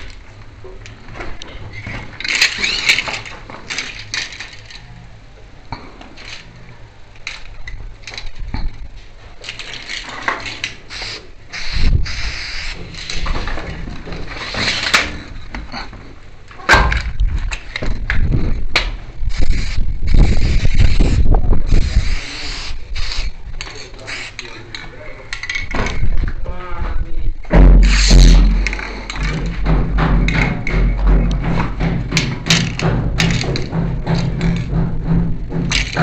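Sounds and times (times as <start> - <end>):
spray paint can hissing: 10.6 - 13.1, 19.3 - 23.4, 27.8 - 28.5
heavy low rumbling knocks: 27.2 - 36.0.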